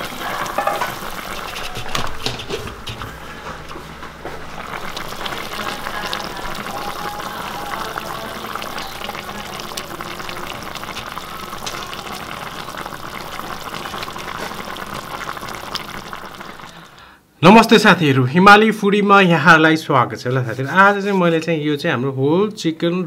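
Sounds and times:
curry simmering with bubbling: 0:00.0 - 0:17.1.

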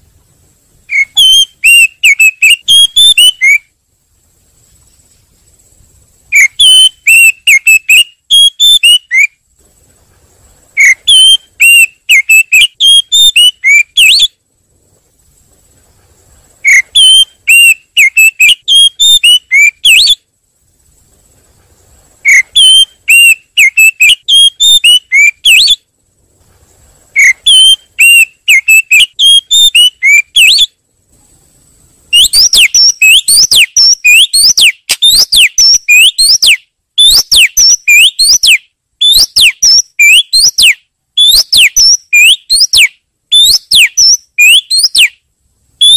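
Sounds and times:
bird whistled chirps: 0:00.9 - 0:03.7, 0:06.3 - 0:09.4, 0:10.8 - 0:14.4, 0:16.6 - 0:20.3, 0:22.2 - 0:25.9, 0:27.2 - 0:30.8, 0:32.1 - 0:45.2.

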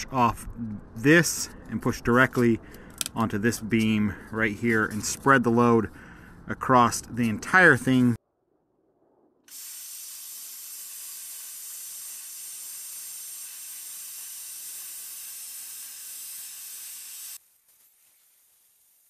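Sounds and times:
plasma cutter hissing: 0:09.5 - 0:19.0.

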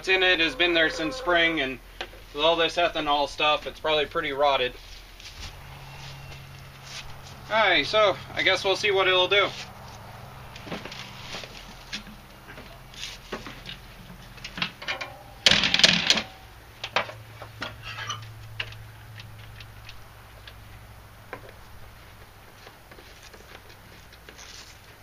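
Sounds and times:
loud clatter: 0:14.6 - 0:16.4.

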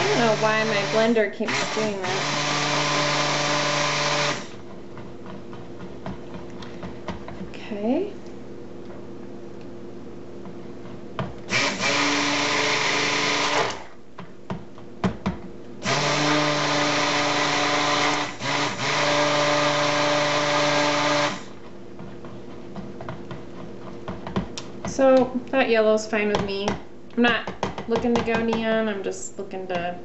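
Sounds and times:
stick blender motor running: 0:00.0 - 0:04.8, 0:11.5 - 0:14.0, 0:15.8 - 0:21.6.

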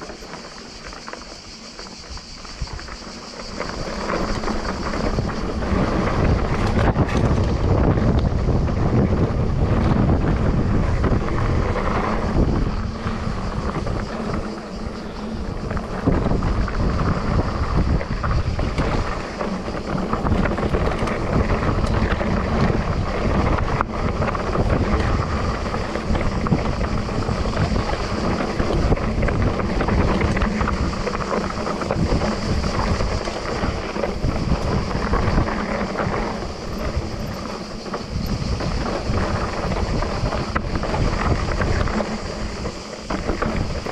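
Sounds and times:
bike rattling: 0:00.0 - 0:43.9
sharp clicks from bumps: 0:00.0 - 0:43.9
tyres rumbling on dirt: 0:00.0 - 0:43.9
wind buffeting microphone: 0:00.0 - 0:43.9.

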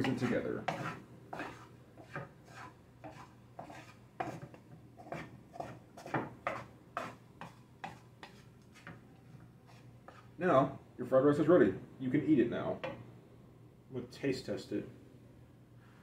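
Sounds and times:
wooden spoon scraping a pan: 0:00.0 - 0:10.4.

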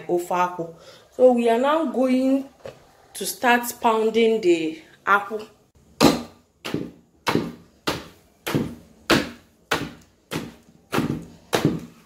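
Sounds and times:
wooden pestle pounding in mortar: 0:06.0 - 0:12.0.

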